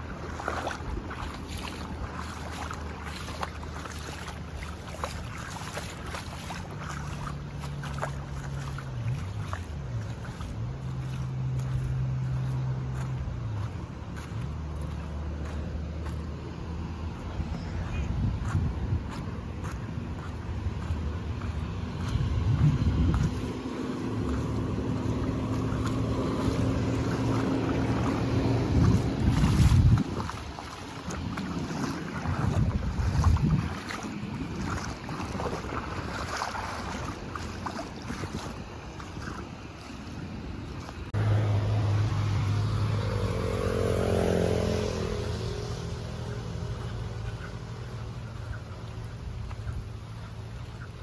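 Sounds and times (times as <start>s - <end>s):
vehicle engine humming: 0.0s - 51.0s
wind rumbling on microphone: 0.0s - 51.0s.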